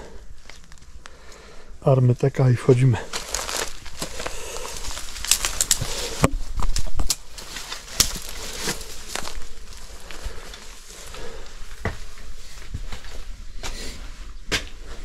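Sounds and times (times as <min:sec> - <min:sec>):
footsteps through dry weeds: 0:03.0 - 0:15.0.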